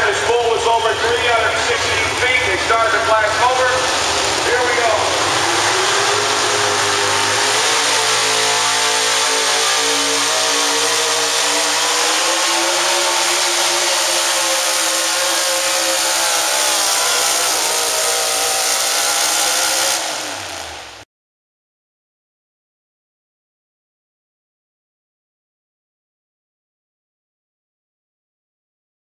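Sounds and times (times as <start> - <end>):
truck engine at full throttle: 0.0 - 21.0.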